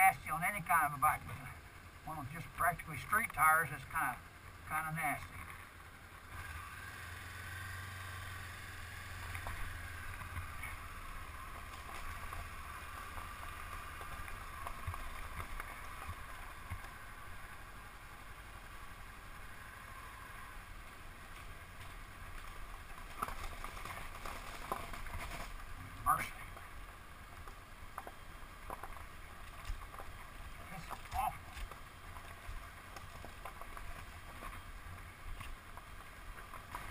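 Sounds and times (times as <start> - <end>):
motorcycle engine running: 0.6 - 36.9
stones clicking under tyres: 8.1 - 36.9.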